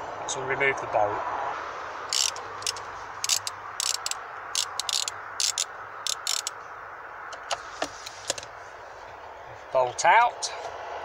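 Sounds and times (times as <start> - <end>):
ratchet clicking: 2.1 - 6.6.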